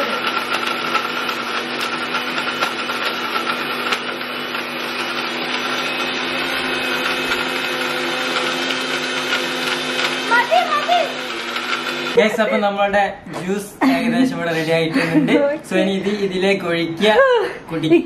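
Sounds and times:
electric blender running: 0.0s - 12.8s.

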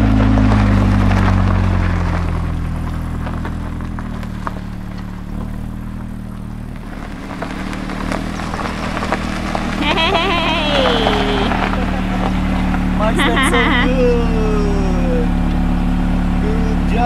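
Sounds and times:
motor humming: 8.2s - 16.8s.

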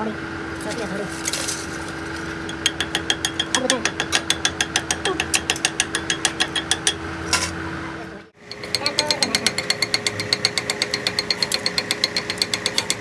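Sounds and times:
metal lathe humming: 8.4s - 13.0s.

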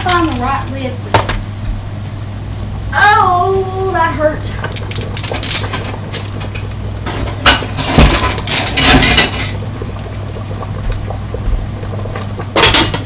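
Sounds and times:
pot lids clattering and clinking: 4.7s - 9.6s, 12.5s - 13.0s.

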